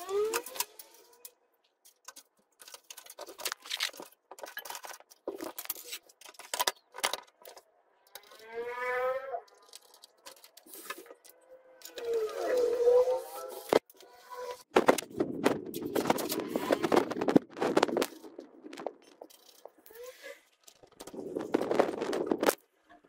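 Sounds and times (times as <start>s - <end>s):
small metal clicks and knocks: 0.2s - 8.5s, 9.5s - 12.1s
squealing metal scrape: 8.1s - 10.0s, 10.7s - 14.7s.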